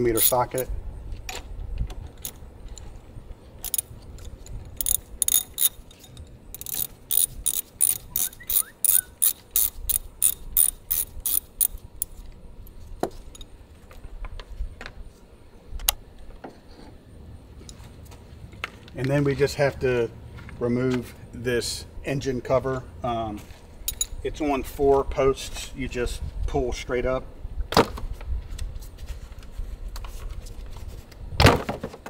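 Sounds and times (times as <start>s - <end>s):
ratchet wrench clicking: 0.1s - 0.7s, 3.6s - 12.2s.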